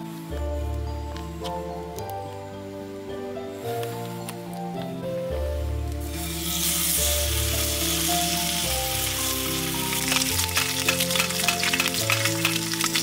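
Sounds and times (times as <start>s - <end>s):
background music with held notes: 0.0s - 13.0s
bacon sizzling in a frying pan: 6.2s - 13.0s.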